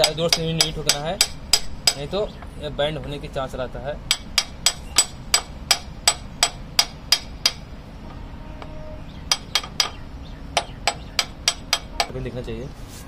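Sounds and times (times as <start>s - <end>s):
hammer tapping metal: 0.0s - 2.2s, 4.1s - 12.3s.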